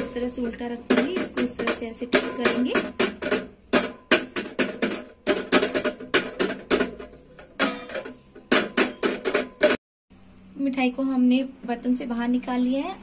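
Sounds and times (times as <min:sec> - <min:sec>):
hands tapping on metal vessel: 0:00.0 - 0:09.8.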